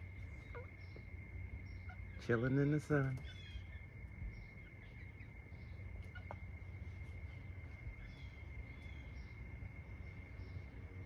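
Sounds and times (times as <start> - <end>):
faint bird chirps: 0.0 - 11.0
low background rumble: 0.0 - 11.0.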